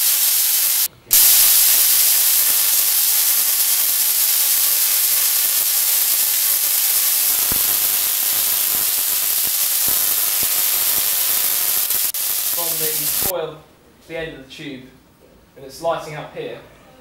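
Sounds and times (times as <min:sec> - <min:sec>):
sharp spark cracks: 0:00.0 - 0:13.3
tesla coil sparks hissing: 0:00.0 - 0:13.3.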